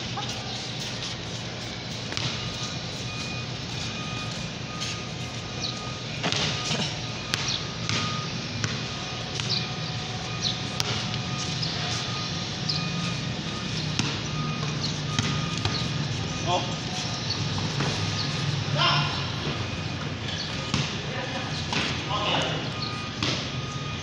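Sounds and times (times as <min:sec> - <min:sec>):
steady low hum: 0:00.0 - 0:24.0
electronic beep: 0:01.6 - 0:24.0
basketball bouncing on concrete: 0:02.1 - 0:02.6, 0:05.4 - 0:11.9, 0:13.9 - 0:16.2, 0:20.2 - 0:21.1, 0:23.1 - 0:23.6.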